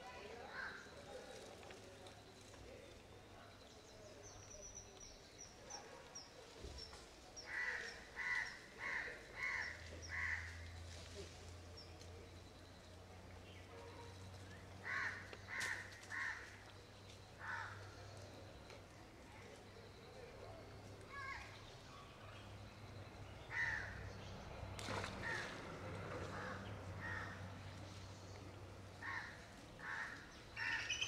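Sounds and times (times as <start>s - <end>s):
crow cawing: 7.5s - 10.6s, 14.8s - 16.6s, 17.4s - 17.8s, 23.5s - 23.9s, 26.4s - 27.4s, 29.0s - 31.0s.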